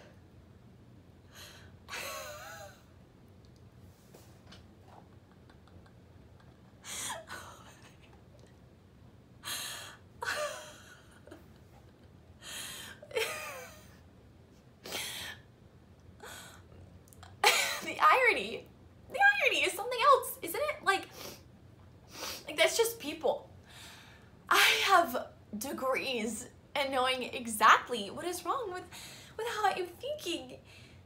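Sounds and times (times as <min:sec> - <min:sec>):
woman laughing breathily: 0:01.9 - 0:02.8, 0:05.1 - 0:08.3, 0:09.4 - 0:14.0.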